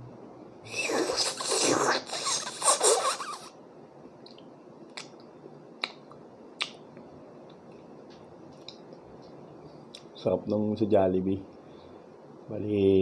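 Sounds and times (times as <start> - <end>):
loud slurp through lips: 0.7 - 3.5.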